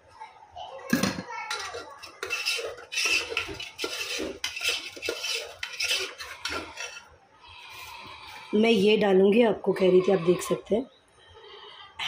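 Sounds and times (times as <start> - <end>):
spoon scraping pot: 1.1 - 9.0, 9.7 - 10.7.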